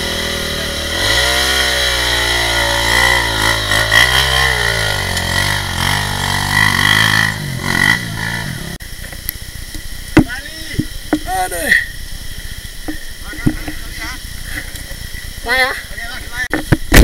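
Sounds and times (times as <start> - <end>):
dirt bike engine revving: 0.0 - 8.8.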